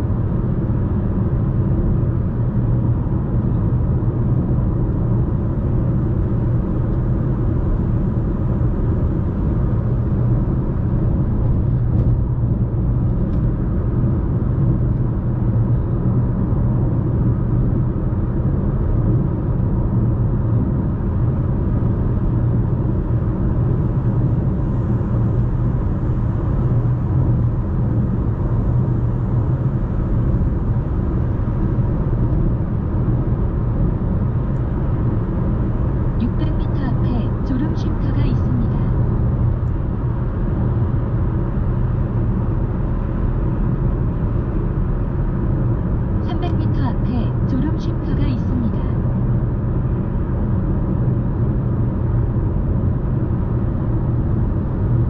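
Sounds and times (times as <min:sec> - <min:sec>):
car cabin road rumble: 0:00.0 - 0:55.0.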